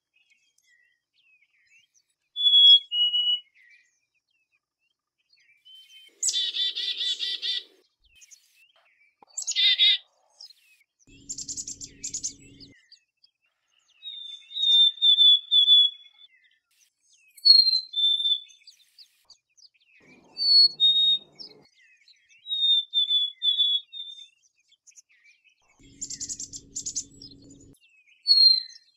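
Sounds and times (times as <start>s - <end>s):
harsh buzzy bird call: 20.0s - 21.6s, 25.8s - 27.8s.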